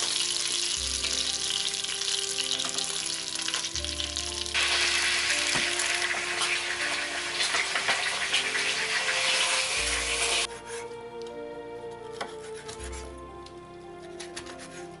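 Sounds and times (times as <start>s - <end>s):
garlic sizzling in a frying pan: 0.0s - 10.5s
background music: 0.0s - 15.0s
knife on wooden cutting board: 10.5s - 11.0s, 11.9s - 13.2s, 13.9s - 15.0s.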